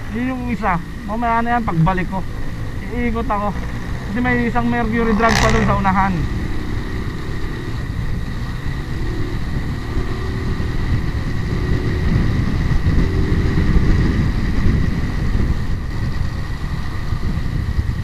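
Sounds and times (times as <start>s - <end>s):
motorcycle engine running: 0.0s - 18.0s
wind noise on microphone: 0.0s - 18.0s.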